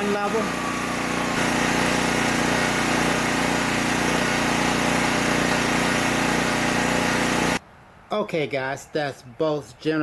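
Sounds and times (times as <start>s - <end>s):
generator engine humming: 0.0s - 7.6s.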